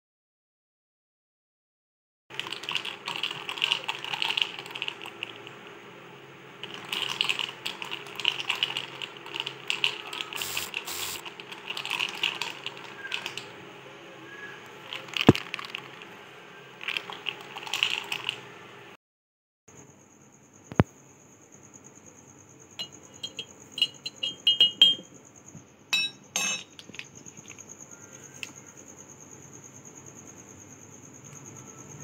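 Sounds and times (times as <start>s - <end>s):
jar contents rattling against glass: 22.8s - 25.1s, 26.0s - 27.7s.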